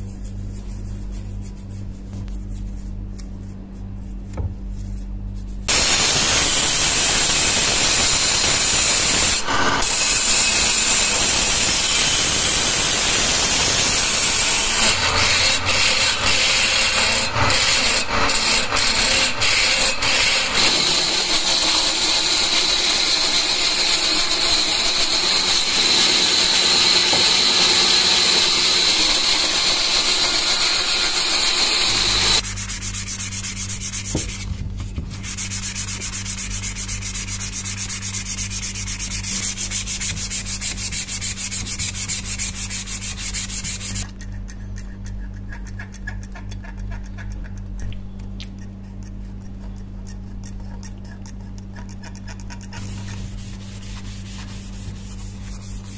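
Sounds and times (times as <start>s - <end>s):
electric motor hum: 5.7s - 32.8s
band saw cutting wood: 5.7s - 34.4s
chisel scraping wood on lathe: 14.8s - 32.8s, 50.7s - 55.9s.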